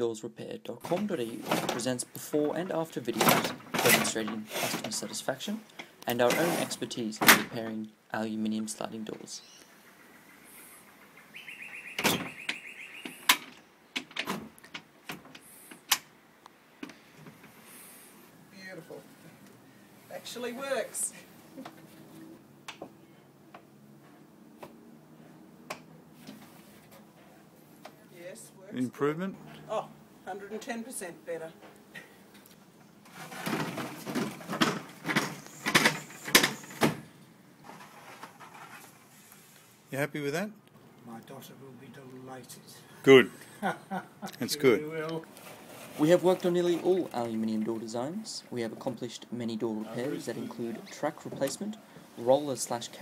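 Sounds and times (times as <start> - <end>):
sliding door rollers whirring: 3.2 - 5.1, 6.2 - 6.8, 33.0 - 37.0, 37.6 - 39.0.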